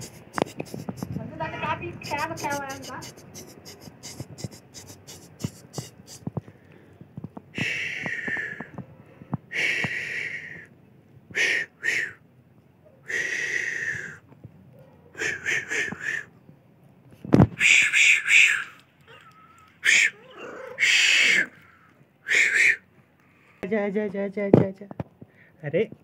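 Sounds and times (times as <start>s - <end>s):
puppies whining: 18.5s - 21.9s.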